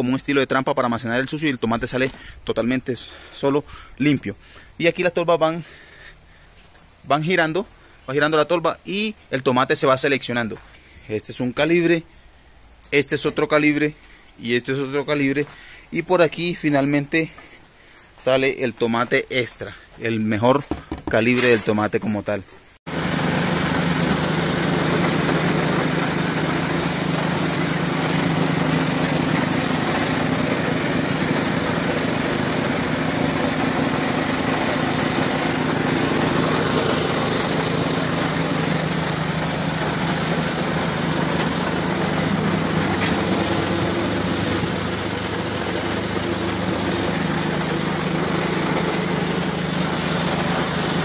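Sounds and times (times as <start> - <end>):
machine motor hum: 22.9 - 51.0.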